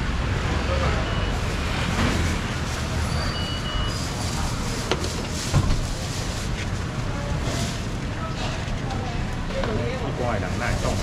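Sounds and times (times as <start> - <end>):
low traffic rumble: 0.0 - 11.0
distant voices: 0.2 - 11.0.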